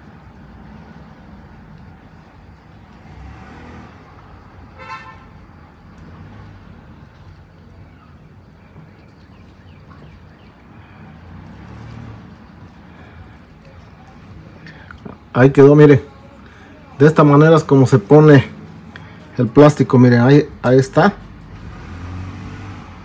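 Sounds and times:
road traffic rumble: 0.0s - 23.0s
car horn toot: 4.7s - 5.4s.

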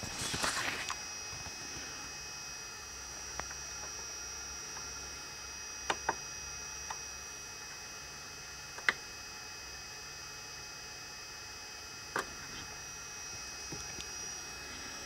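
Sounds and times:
thin high whine: 0.0s - 15.0s.

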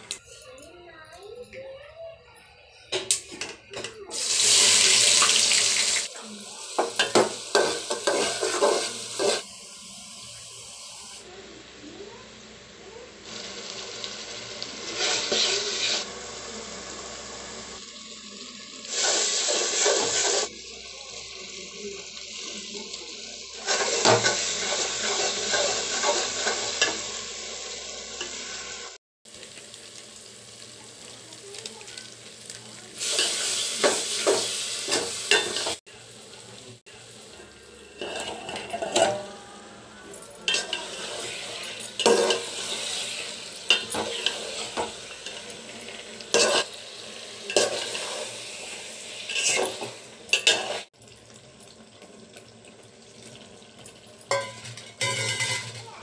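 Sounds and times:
food sizzling in hot oil: 2.5s - 56.0s
spoon scraping metal pot: 7.0s - 9.4s, 37.9s - 39.3s, 40.5s - 45.6s, 46.3s - 46.7s, 49.3s - 50.9s.

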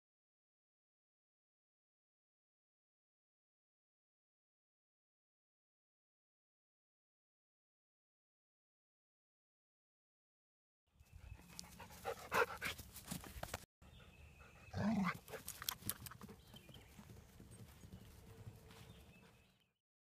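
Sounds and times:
dog panting: 11.4s - 13.2s.

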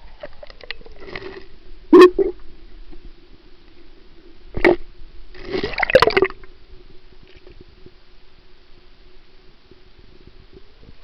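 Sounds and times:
water gurgling underwater: 5.4s - 6.5s.

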